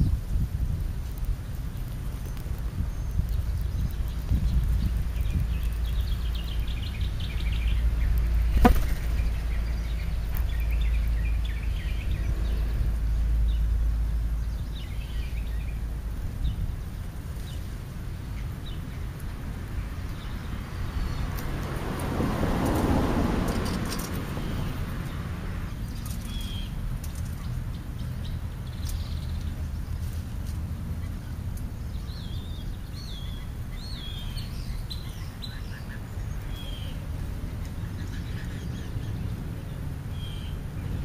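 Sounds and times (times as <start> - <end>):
birds chirping faintly: 1.1 - 22.8.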